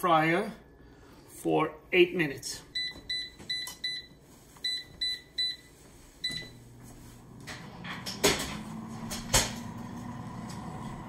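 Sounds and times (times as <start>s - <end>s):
air fryer humming: 2.7s - 11.0s.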